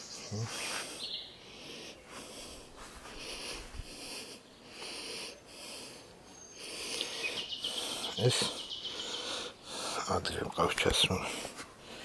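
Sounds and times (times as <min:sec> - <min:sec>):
insect chirping: 0:06.3 - 0:10.1.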